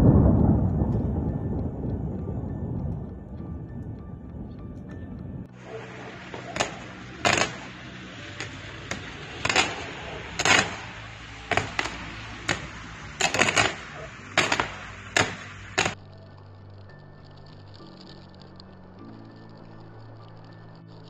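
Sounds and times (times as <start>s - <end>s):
sharp cracks and clicks: 0.0s - 21.0s
steady hiss: 5.5s - 21.0s.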